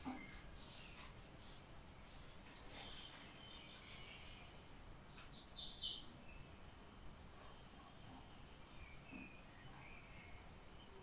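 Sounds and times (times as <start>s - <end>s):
faint rustle: 0.0s - 5.4s.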